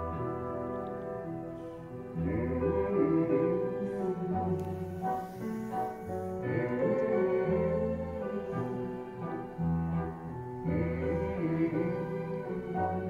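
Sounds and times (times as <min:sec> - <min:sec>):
orchestral strings music: 0:00.0 - 0:13.0.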